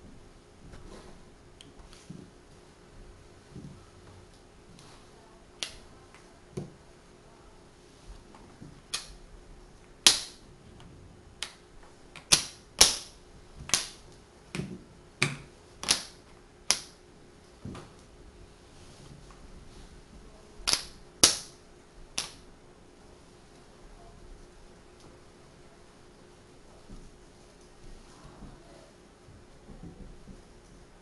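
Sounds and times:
wooden blocks clicking together: 12.2s - 13.1s, 13.7s - 17.0s, 20.6s - 21.6s, 22.2s - 22.4s.

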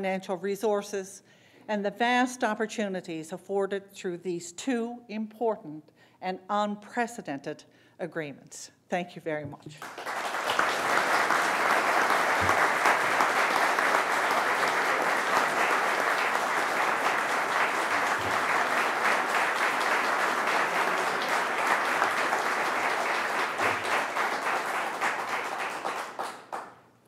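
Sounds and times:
crowd applauding: 9.8s - 26.9s.

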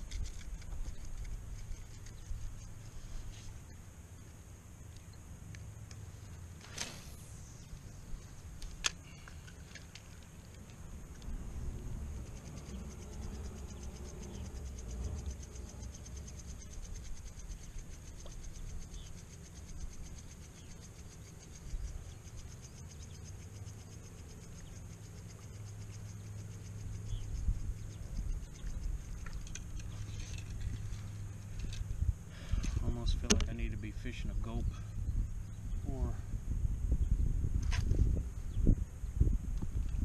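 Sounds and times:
wind rumbling on microphone: 0.0s - 3.8s, 10.3s - 20.1s, 25.5s - 40.0s
insect buzz: 0.0s - 40.0s
sharp click: 33.2s - 33.6s.

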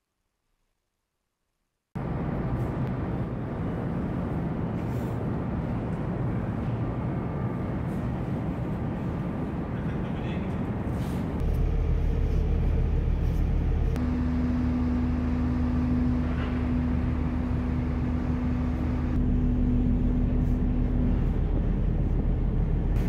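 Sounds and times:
ferry engines droning: 2.0s - 23.0s
steady hum tone: 11.3s - 23.0s.

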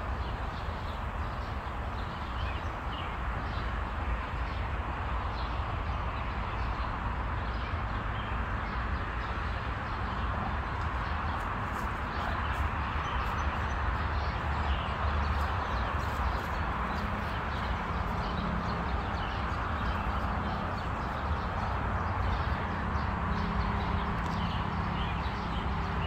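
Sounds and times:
small birds chirping: 5.4s - 26.0s.

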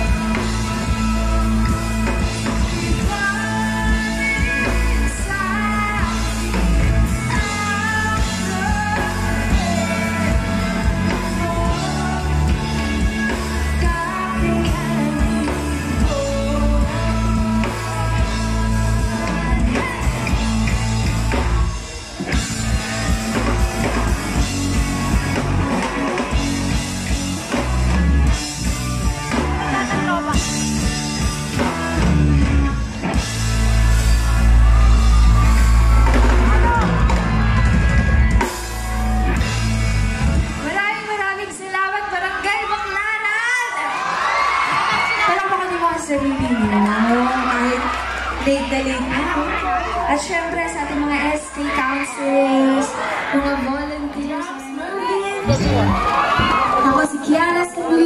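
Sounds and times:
person singing: 0.0s - 20.8s, 55.4s - 56.0s
live rock band playing: 0.0s - 58.0s.

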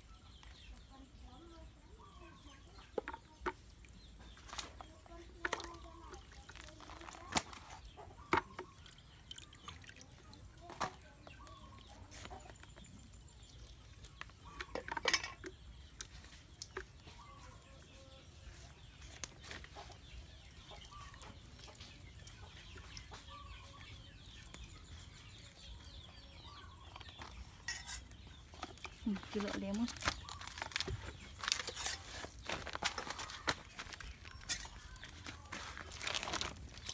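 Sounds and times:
water sloshing in a bucket: 2.0s - 25.9s.

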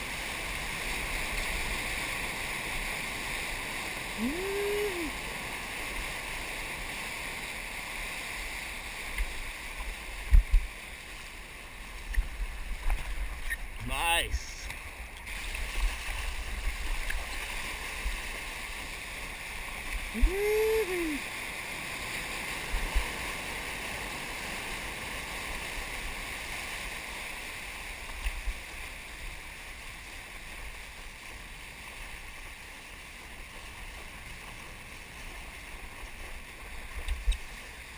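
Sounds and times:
water rushing and splashing: 0.0s - 37.9s.

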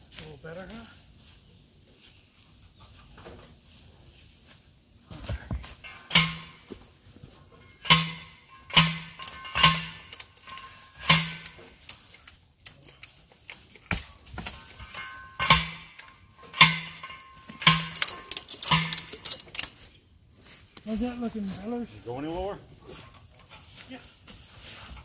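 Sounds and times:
post driver clanging on metal: 5.8s - 19.7s.

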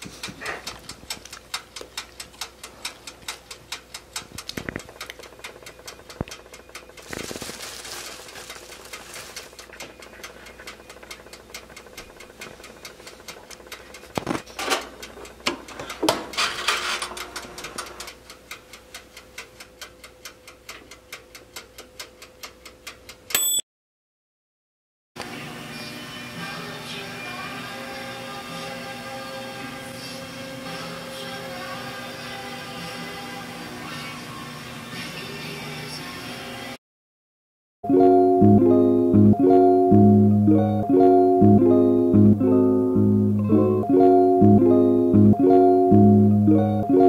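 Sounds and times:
dial timer ticking: 0.0s - 7.1s, 8.7s - 14.2s, 17.2s - 23.6s
bell ding: 23.3s - 23.6s.

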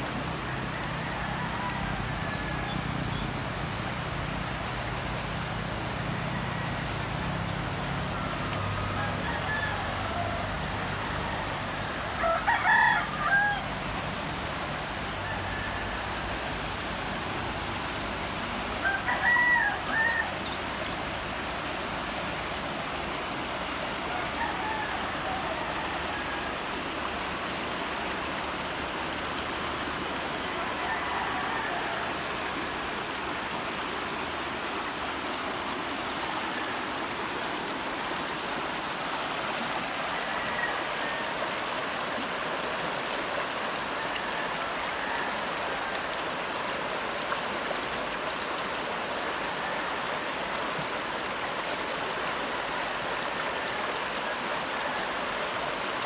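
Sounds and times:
river rushing over rocks: 0.0s - 56.0s
rooster crowing: 0.5s - 2.8s, 8.0s - 13.8s, 15.1s - 16.5s, 18.8s - 20.5s, 24.0s - 26.7s, 30.4s - 32.8s, 39.8s - 41.7s, 43.8s - 46.2s.

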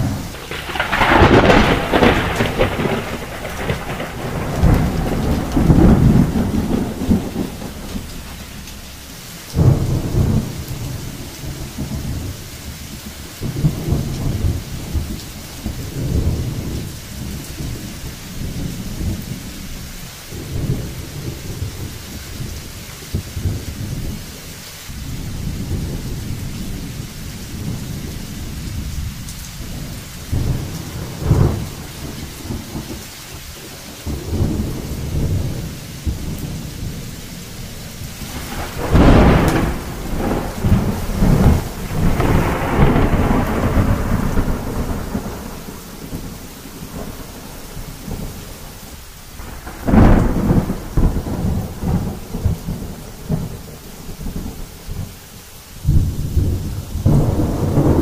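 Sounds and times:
sharp thunderclap: 0.0s - 8.7s, 9.5s - 12.4s, 29.0s - 33.0s, 34.0s - 37.1s, 38.0s - 48.3s, 49.4s - 55.1s, 55.8s - 58.0s
thunder rumbling: 0.0s - 55.2s, 55.8s - 58.0s
steady rain: 0.0s - 58.0s.

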